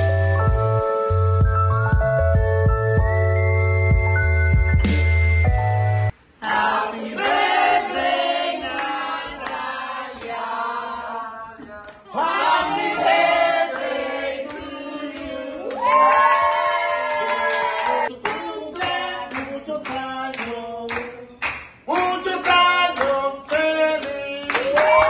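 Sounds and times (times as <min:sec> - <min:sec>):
electronic music: 0:00.0 - 0:06.1
people clapping: 0:06.4 - 0:10.6, 0:11.6 - 0:25.0
group singing a celebration song: 0:06.4 - 0:16.0, 0:17.7 - 0:24.7.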